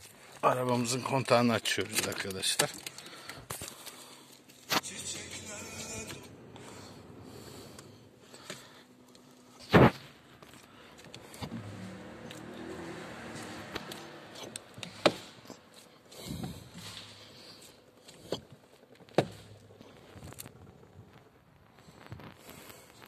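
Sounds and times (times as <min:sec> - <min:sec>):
power steering whirring: 0:04.5 - 0:09.2, 0:10.4 - 0:21.0.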